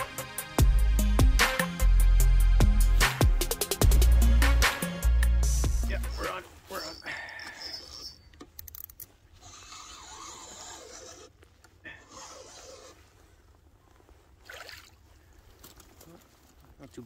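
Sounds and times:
fishing reel whirring: 0:06.9 - 0:13.0.

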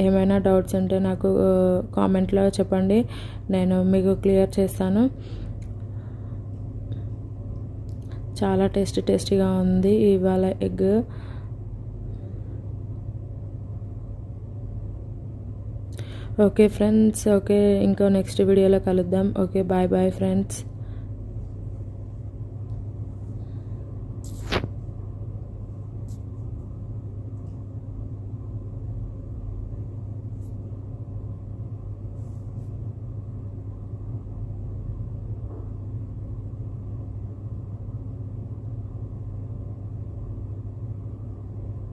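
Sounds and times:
low background hum: 0:00.0 - 0:41.9.

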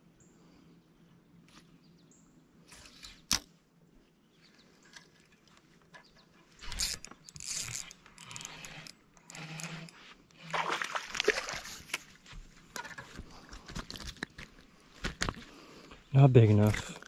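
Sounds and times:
spinning reel being cranked: 0:06.6 - 0:10.0
fish splashing: 0:10.4 - 0:12.0.

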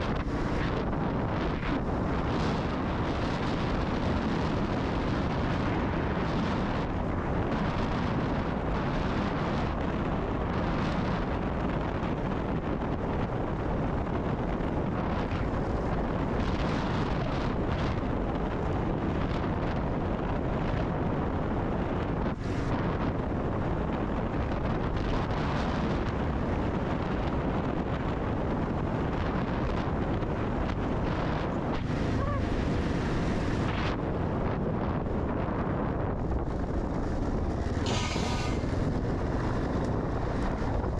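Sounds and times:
wind buffeting microphone: 0:00.0 - 0:40.9.

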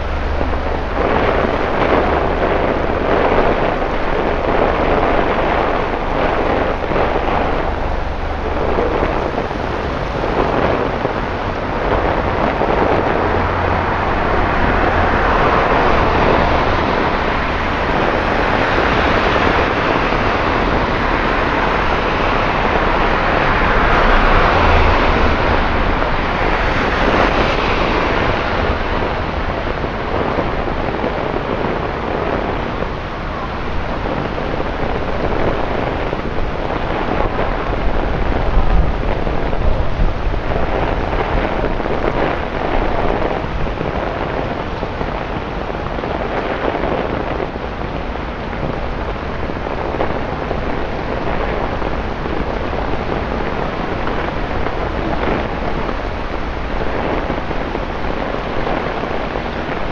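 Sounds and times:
low rumble: 0:00.0 - 0:59.9
torrential rain on street: 0:00.0 - 0:59.9
tyres swishing through water: 0:00.0 - 0:59.9.

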